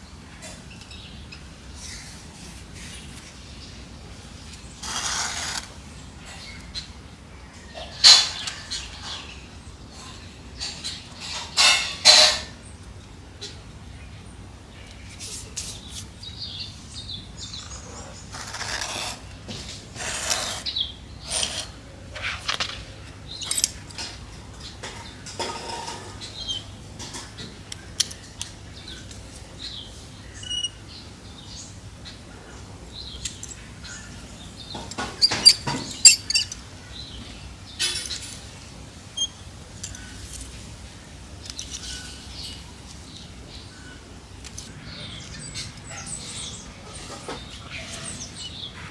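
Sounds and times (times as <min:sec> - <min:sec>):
hands scraping and rustling soil: 0:01.8 - 0:03.5, 0:04.4 - 0:06.4, 0:14.9 - 0:16.3, 0:17.5 - 0:24.2
bird chirps: 0:28.8 - 0:32.2.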